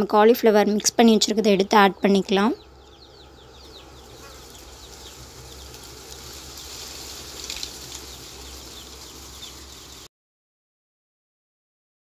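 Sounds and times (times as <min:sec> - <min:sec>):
food deep-frying in oil: 0:03.5 - 0:10.1.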